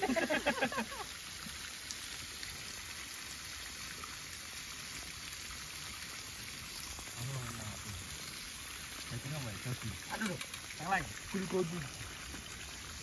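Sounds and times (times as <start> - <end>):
meat sizzling on grill pan: 9.2 - 11.7.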